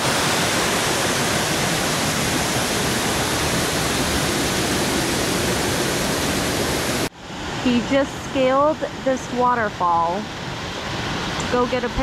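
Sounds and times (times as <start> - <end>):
waterfall rushing: 0.0 - 7.6.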